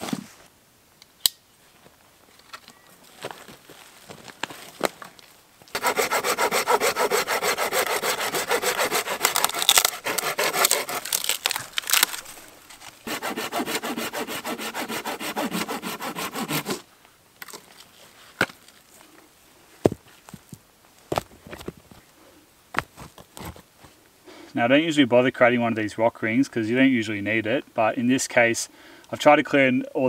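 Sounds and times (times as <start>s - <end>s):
hand saw cutting a branch: 5.7s - 16.8s.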